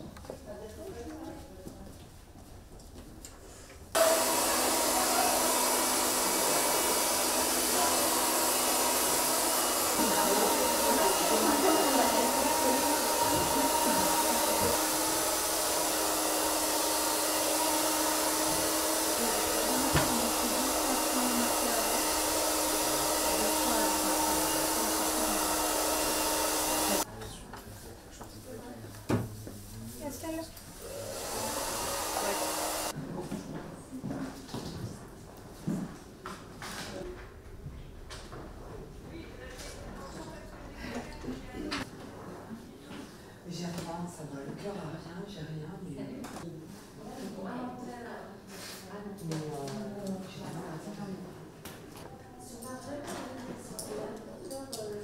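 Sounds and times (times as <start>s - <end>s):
hair dryer running: 4.0s - 27.1s, 30.8s - 33.0s.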